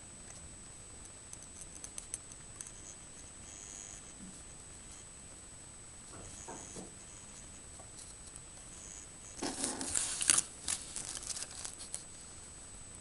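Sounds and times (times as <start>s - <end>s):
scratchy rustling and clicks: 9.4s - 12.1s.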